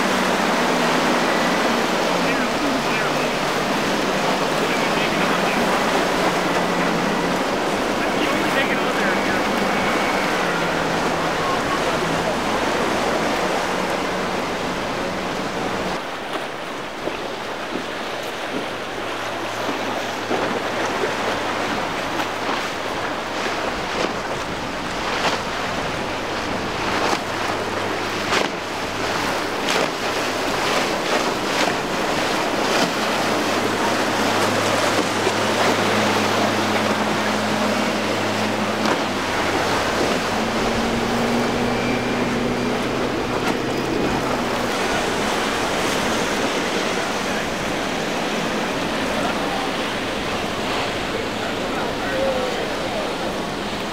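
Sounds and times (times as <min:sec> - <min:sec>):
choppy surf breaking: 0:00.0 - 0:53.9
hull slamming through waves: 0:00.0 - 0:53.9
outboard motors humming: 0:00.0 - 0:53.9.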